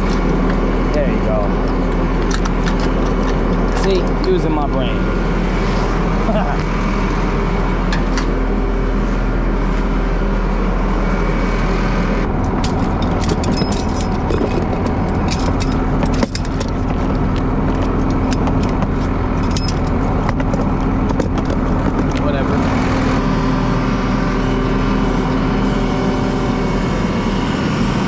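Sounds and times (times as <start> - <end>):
truck engine idling: 0.0 - 27.3
metallic clinks and rattles: 12.4 - 22.2.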